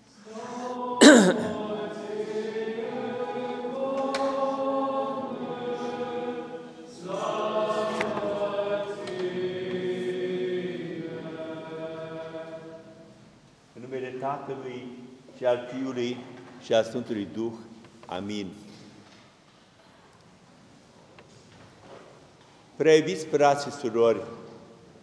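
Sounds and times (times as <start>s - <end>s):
voices chanting liturgical response: 0.0s - 13.4s.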